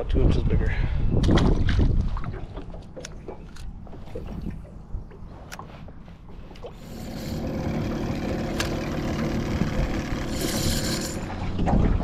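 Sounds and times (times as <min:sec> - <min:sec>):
motorboat engine droning: 0:06.6 - 0:12.0.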